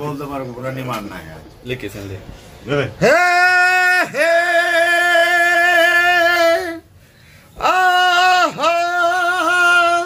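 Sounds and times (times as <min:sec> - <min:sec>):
man singing a long held note: 0:03.0 - 0:06.9, 0:07.6 - 0:10.0.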